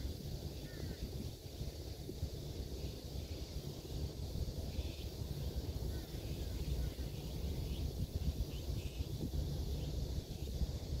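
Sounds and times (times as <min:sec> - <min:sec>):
wind buffeting microphone: 0:00.0 - 0:11.0
faint bird chirps: 0:00.5 - 0:01.3, 0:04.6 - 0:10.9.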